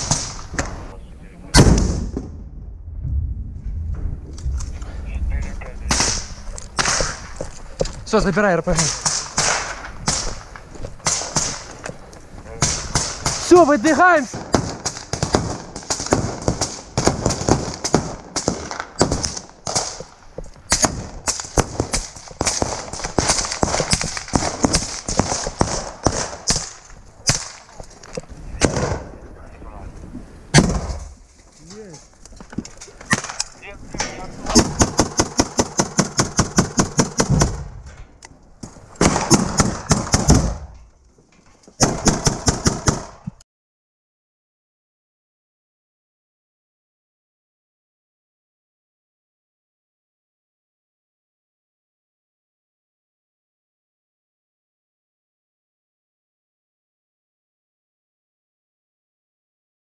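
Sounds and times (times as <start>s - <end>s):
running footsteps on rubble: 6.4s - 8.2s, 9.9s - 11.0s
running footsteps over rubble: 6.4s - 8.6s, 9.8s - 12.6s, 21.4s - 28.5s, 29.9s - 35.0s.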